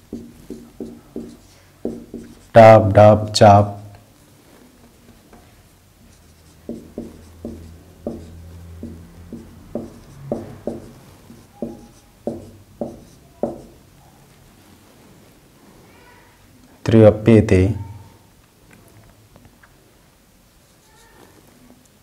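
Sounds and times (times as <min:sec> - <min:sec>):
marker tapping and stroking whiteboard: 0:00.0 - 0:02.7, 0:05.1 - 0:13.9.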